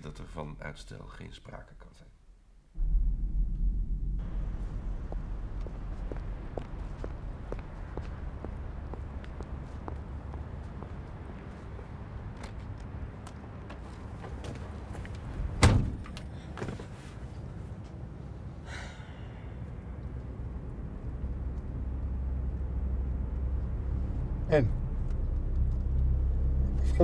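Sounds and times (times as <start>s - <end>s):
low engine rumble: 2.8s - 27.0s
van door slamming: 15.5s - 16.1s.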